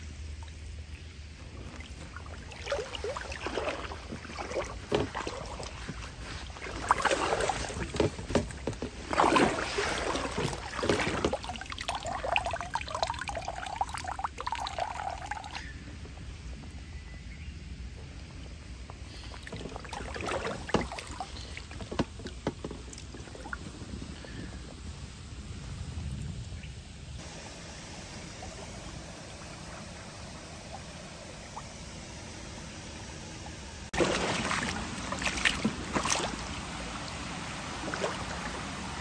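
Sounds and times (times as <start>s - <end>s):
net splashing in stream water: 0.1s - 15.7s, 19.2s - 23.7s, 33.9s - 39.0s
water running off net: 0.3s - 15.8s, 19.1s - 24.4s, 33.9s - 39.0s.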